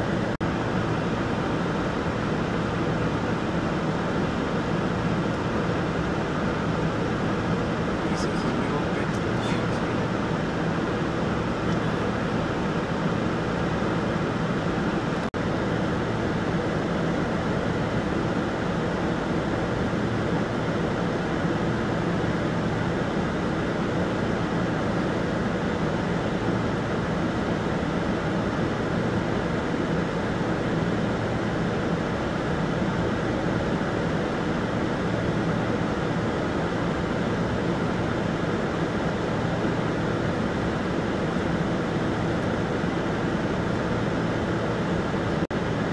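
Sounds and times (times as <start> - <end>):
minibus engine idling: 0.0 - 15.3.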